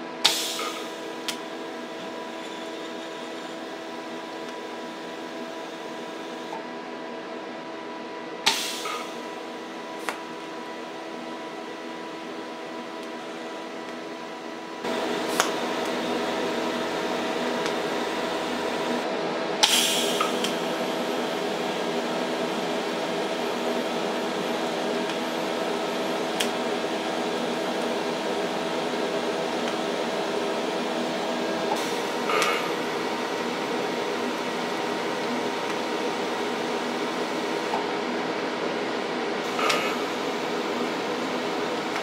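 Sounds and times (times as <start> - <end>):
welding machine hum: 0.0 - 6.9, 8.4 - 42.0
welding arc crackle: 14.9 - 19.0.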